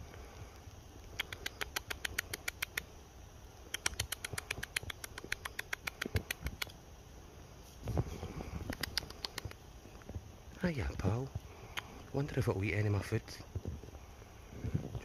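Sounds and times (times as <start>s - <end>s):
fast sharp ticks: 1.0s - 2.9s, 3.6s - 6.8s, 8.6s - 9.6s.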